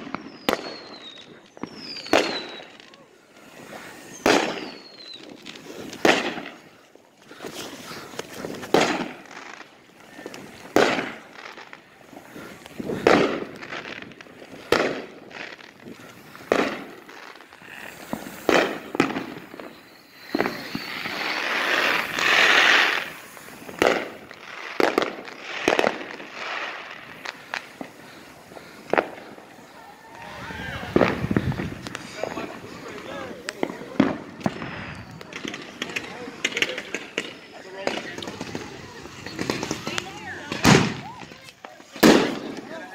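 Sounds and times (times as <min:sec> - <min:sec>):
fireworks bangs: 0:00.0 - 0:42.9
rushing hiss: 0:15.5 - 0:41.2.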